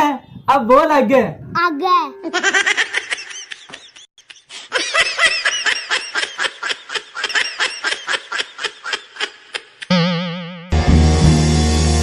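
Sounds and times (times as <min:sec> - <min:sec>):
person laughing hard: 0:02.2 - 0:09.9.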